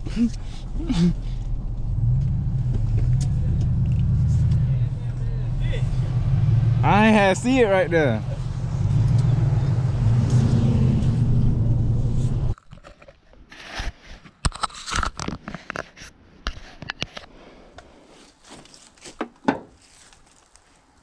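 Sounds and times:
truck engine humming: 0.0s - 12.6s
crunching footsteps: 2.0s - 6.0s, 18.2s - 21.0s.

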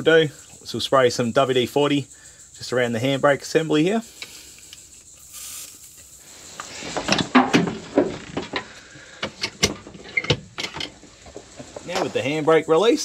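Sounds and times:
aerosol can spraying: 4.0s - 6.8s.

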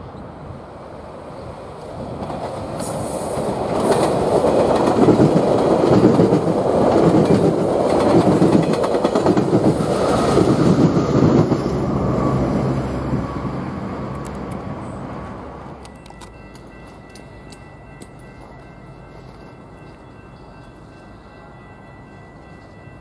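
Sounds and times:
train rumble: 0.0s - 23.0s
train wheels clacking over rail joints: 2.2s - 11.6s.

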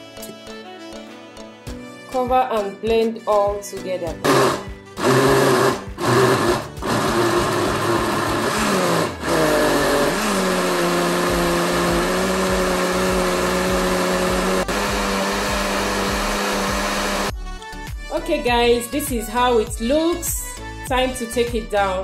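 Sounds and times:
blender motor blending: 4.2s - 17.3s.

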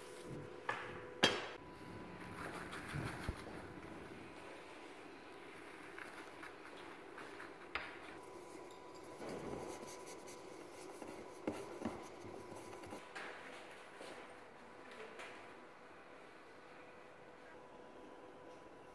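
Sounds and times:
faint steady hum: 0.0s - 18.9s
hands rubbing pastry sheets: 2.1s - 13.0s.

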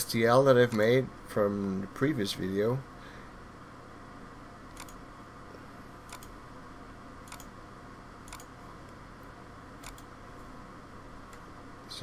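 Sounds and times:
faint room hum: 0.0s - 12.0s
computer mouse clicking: 4.7s - 5.0s, 6.1s - 6.4s, 7.2s - 7.5s, 8.2s - 8.5s, 9.8s - 10.1s.

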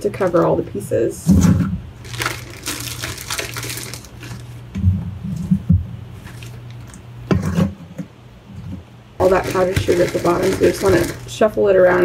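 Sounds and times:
plastic bag crinkling: 2.0s - 4.6s, 6.2s - 7.0s, 9.2s - 11.4s.

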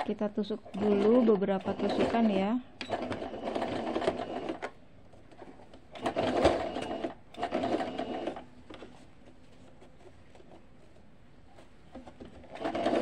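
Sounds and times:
sewing machine stitching: 0.7s - 4.7s, 6.0s - 8.4s, 12.4s - 13.0s.

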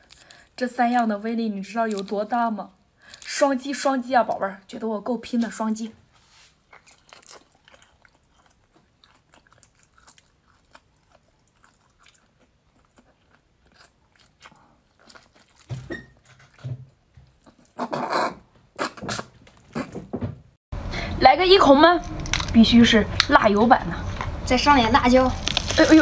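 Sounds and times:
person biting and chewing: 6.5s - 16.6s, 25.4s - 26.0s.

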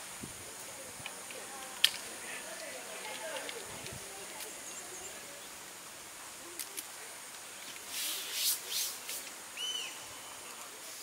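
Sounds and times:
bird chirp: 9.6s - 10.4s.

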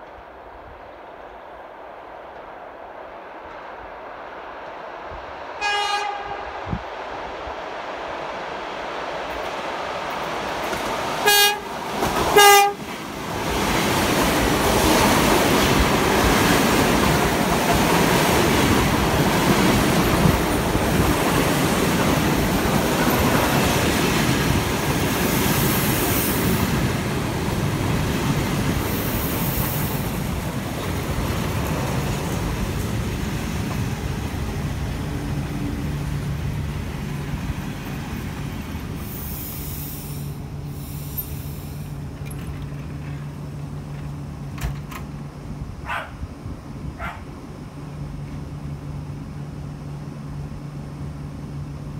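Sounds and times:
train rumbling past: 0.0s - 51.9s
train horn blasts: 5.6s - 6.6s, 11.2s - 12.9s.

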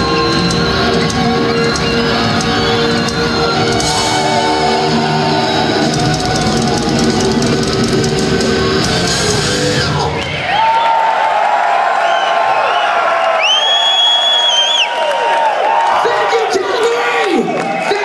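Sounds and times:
metal band playing live: 0.0s - 10.3s
crowd cheering and whistling: 0.0s - 18.0s.

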